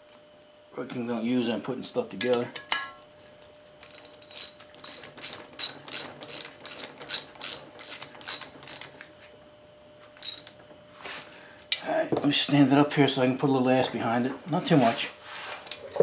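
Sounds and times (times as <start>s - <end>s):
ratchet wrench clicking: 3.8s - 8.9s, 10.2s - 10.5s.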